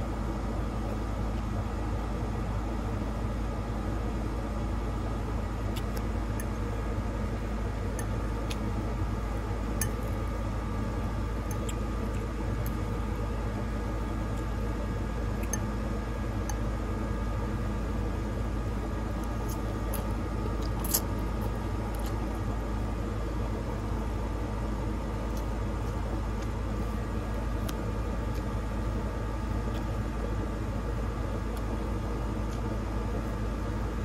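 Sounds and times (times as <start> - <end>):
low hum and rumble: 0.0 - 34.0
person chewing: 5.7 - 6.5, 8.0 - 8.7, 11.4 - 12.8, 19.2 - 22.5, 25.2 - 28.5.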